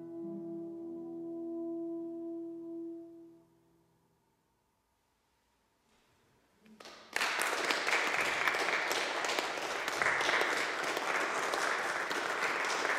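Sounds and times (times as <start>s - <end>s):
scattered claps: 6.7s - 12.9s
audience applauding: 6.8s - 12.9s.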